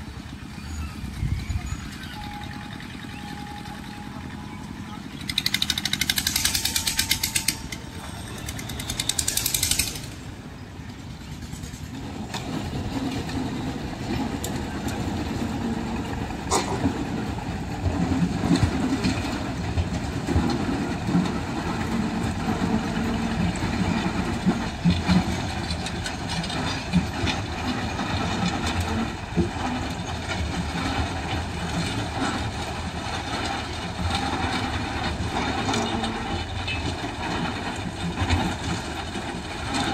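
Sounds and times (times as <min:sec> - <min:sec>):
diesel engine running at low speed: 0:00.0 - 0:39.9.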